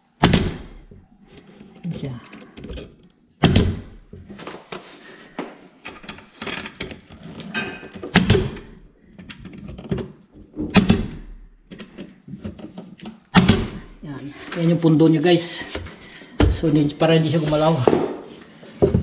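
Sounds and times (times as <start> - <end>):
pin nailer firing: 0.2 - 0.8, 3.4 - 4.0, 10.7 - 11.3.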